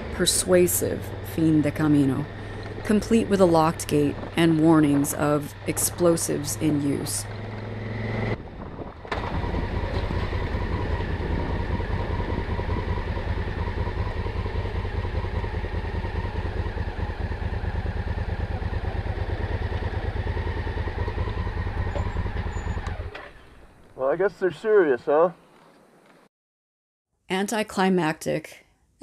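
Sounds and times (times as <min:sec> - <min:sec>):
motorcycle engine idling: 0:00.0 - 0:04.8, 0:08.5 - 0:24.0.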